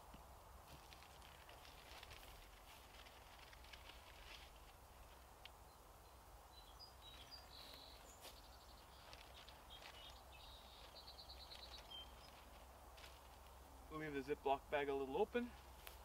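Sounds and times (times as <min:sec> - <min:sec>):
faint bird chirps: 0:05.6 - 0:12.6.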